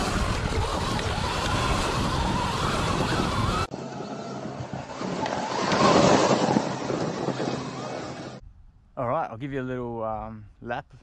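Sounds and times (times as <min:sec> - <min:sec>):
tyres rolling on dirt trail: 0:00.0 - 0:08.4
wind on microphone: 0:00.0 - 0:09.0.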